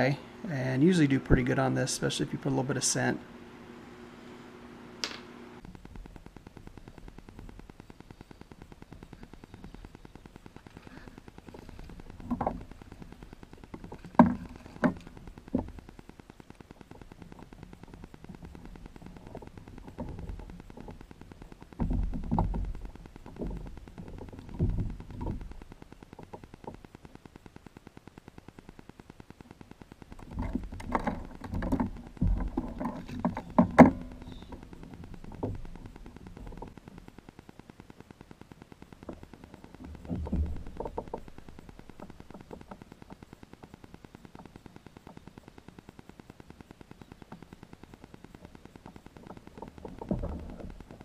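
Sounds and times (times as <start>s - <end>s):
microphone interference buzz: 0.0s - 51.0s
fishing tackle knocking and rustling: 30.2s - 36.8s, 39.8s - 42.9s.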